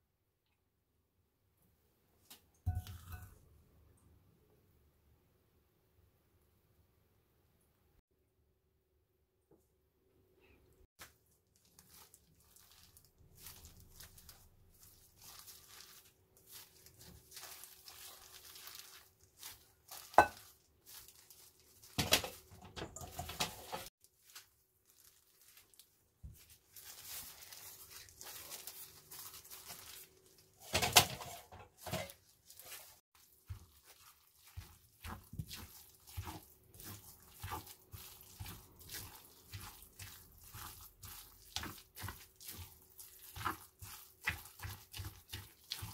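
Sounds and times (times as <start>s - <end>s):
soft scraping and squishing: 10.4s - 45.9s.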